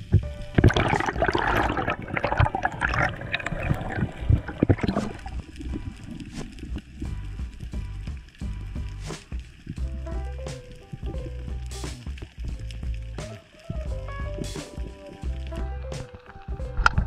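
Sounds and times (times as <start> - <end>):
water gurgling and bubbling: 0.0 - 8.0.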